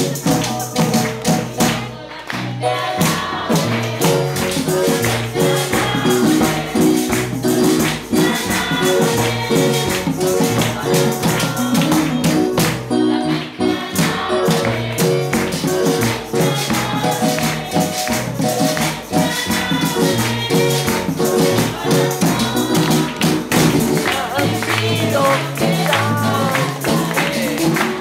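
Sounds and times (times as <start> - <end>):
hand drum: 0.0 - 2.0, 2.8 - 13.0, 13.8 - 28.0
shaken metal hand percussion: 0.0 - 2.0, 2.9 - 13.0, 13.8 - 28.0
sustained keyboard notes: 0.0 - 28.0
girl singing through microphone: 24.2 - 27.0.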